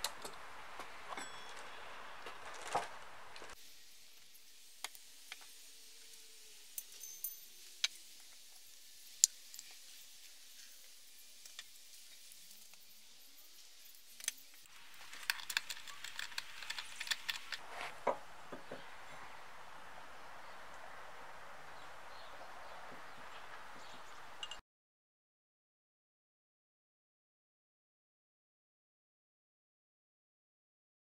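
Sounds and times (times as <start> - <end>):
small metal clicks and clinks: 6.8 - 8.0.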